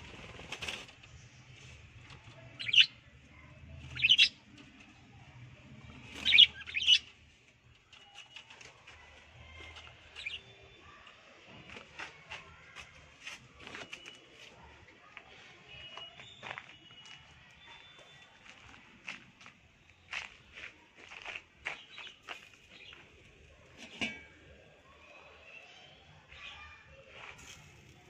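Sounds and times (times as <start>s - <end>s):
budgerigars chirping: 2.6s - 2.9s, 4.0s - 4.4s, 6.2s - 7.1s.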